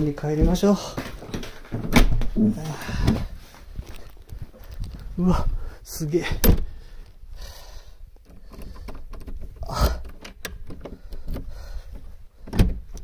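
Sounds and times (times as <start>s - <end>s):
heavy door thumps: 0.3s - 3.4s, 6.3s - 6.8s, 12.4s - 13.0s
metal door clicks and rattles: 8.2s - 11.5s.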